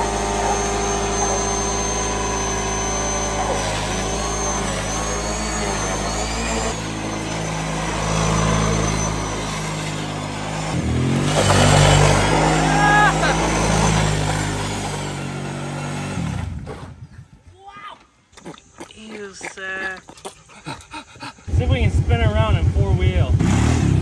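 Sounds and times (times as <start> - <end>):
tyres spinning on wet pavement: 0.0 - 16.2
atv engine revving high: 0.0 - 17.0, 20.6 - 24.0.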